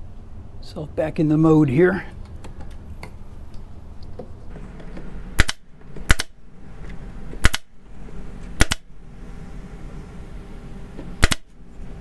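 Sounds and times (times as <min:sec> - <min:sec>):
nail gun firing into wood: 0:05.4 - 0:06.4, 0:07.4 - 0:07.7, 0:08.6 - 0:08.9, 0:11.2 - 0:11.5.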